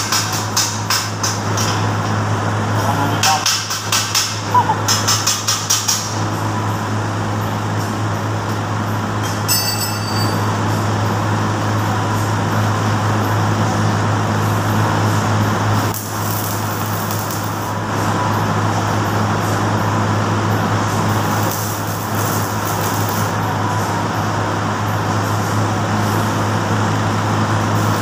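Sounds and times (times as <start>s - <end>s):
constant low hum: 0.0s - 28.0s
welding arc crackling and sizzling: 10.4s - 28.0s.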